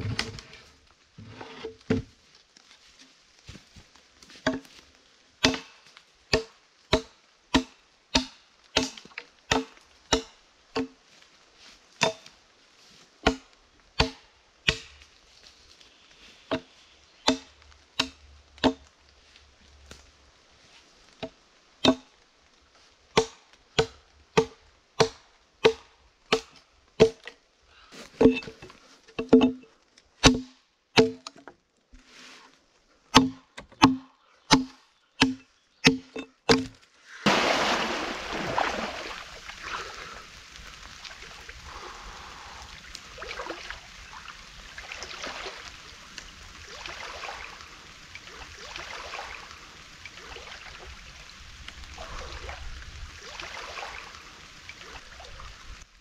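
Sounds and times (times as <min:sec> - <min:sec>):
axe chopping wooden pole: 0:05.4 - 0:11.0, 0:12.0 - 0:12.2, 0:13.2 - 0:14.9, 0:17.3 - 0:18.8, 0:21.8 - 0:22.1, 0:23.2 - 0:27.3, 0:30.2 - 0:31.4, 0:33.1 - 0:37.7
water splashing from swimming: 0:37.2 - 0:55.9.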